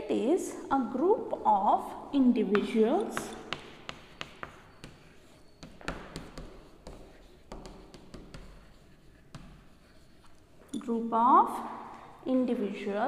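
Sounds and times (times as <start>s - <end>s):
chalk tapping and scratching: 2.4s - 10.5s.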